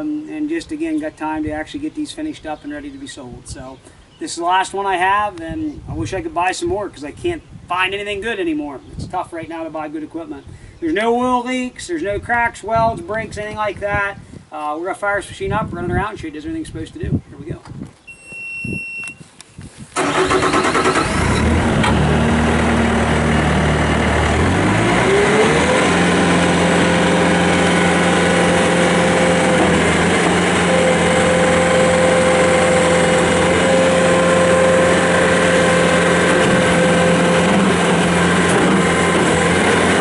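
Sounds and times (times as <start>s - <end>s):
diesel engine starting and revving: 20.0s - 40.0s.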